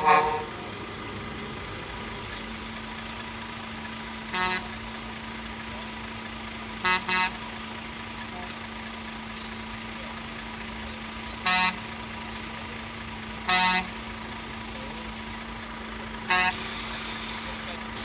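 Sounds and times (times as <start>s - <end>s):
truck air horn blasts: 0.0s - 0.7s, 4.3s - 4.8s, 6.8s - 7.4s, 11.4s - 11.9s, 13.4s - 14.0s, 16.3s - 17.2s
truck engines idling: 0.0s - 18.0s.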